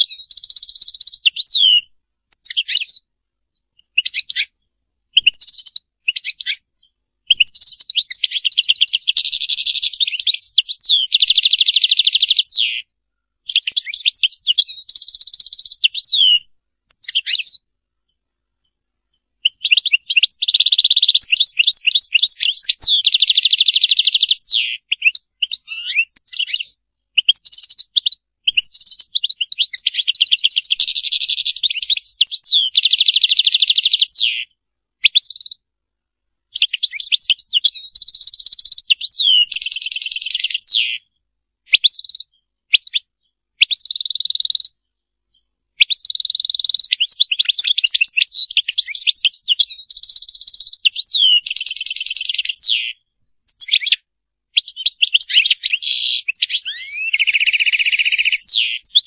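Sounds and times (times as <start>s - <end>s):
goldfinch singing: 0.0s - 3.0s, 5.2s - 12.9s, 13.5s - 17.6s, 19.4s - 34.5s, 36.5s - 41.1s, 45.8s - 54.0s, 54.6s - 59.0s.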